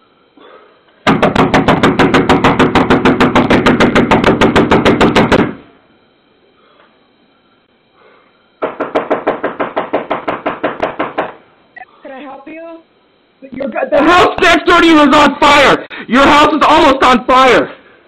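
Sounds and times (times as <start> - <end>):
fast knocking on window: 1.0 - 5.6, 8.6 - 11.4
fist pounding on door: 1.0 - 5.6, 8.6 - 11.4.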